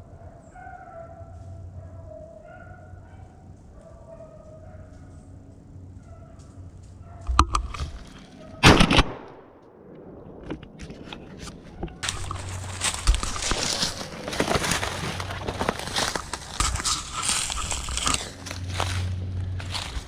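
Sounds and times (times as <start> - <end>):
shotgun shot: 8.6 - 9.8
footsteps crunching dry leaves: 11.4 - 20.0.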